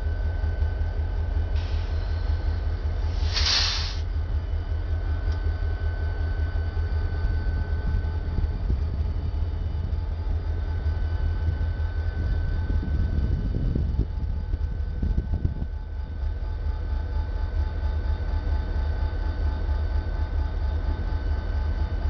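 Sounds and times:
diesel locomotive engine rumble: 0:00.0 - 0:22.0
short hiss: 0:03.1 - 0:04.0.

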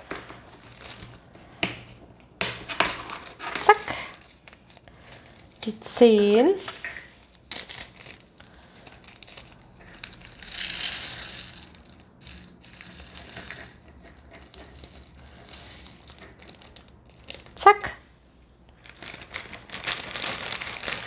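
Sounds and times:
plastic bags crinkling: 0:00.0 - 0:01.6, 0:02.6 - 0:05.7, 0:07.0 - 0:13.8, 0:14.5 - 0:17.6, 0:18.8 - 0:21.0.

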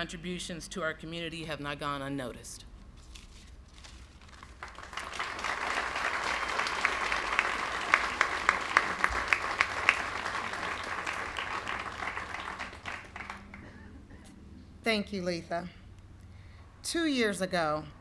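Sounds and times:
audience applauding: 0:04.4 - 0:13.8.

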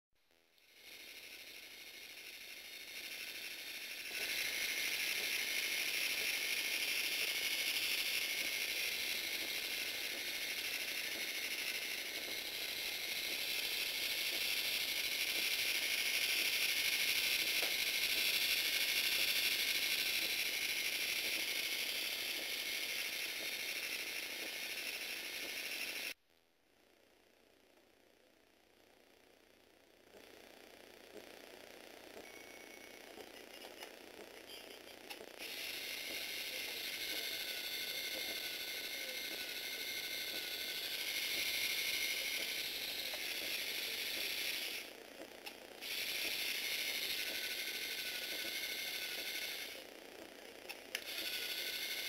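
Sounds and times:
motor driving gears whirring: 0:00.6 - 0:26.2, 0:30.1 - 0:52.0.

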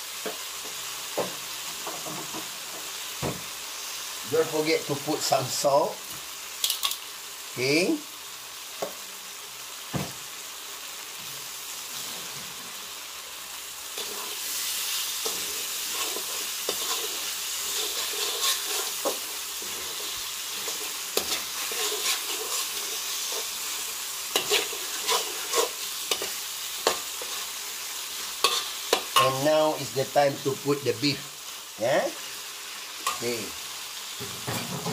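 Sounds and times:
sauce sizzling in hot oil: 0:00.0 - 0:34.9
metal spatula scraping wok: 0:13.9 - 0:30.6, 0:32.2 - 0:34.9.

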